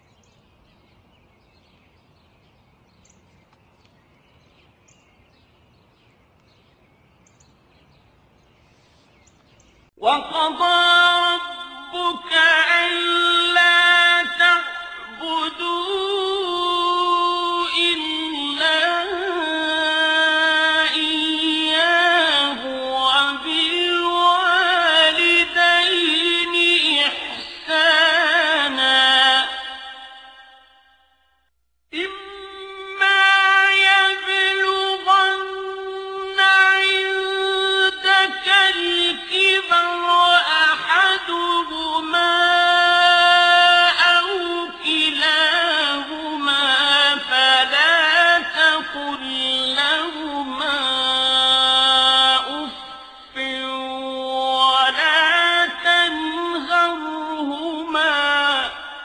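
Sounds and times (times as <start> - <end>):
small birds chirping: 0.0 - 10.0
loud chanted recitation: 10.0 - 30.6, 32.0 - 59.0.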